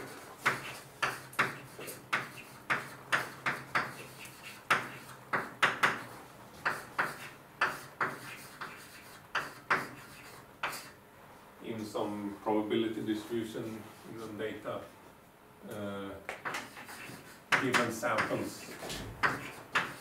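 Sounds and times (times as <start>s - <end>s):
writing taps on a board: 0.4s - 10.0s, 16.3s - 20.0s.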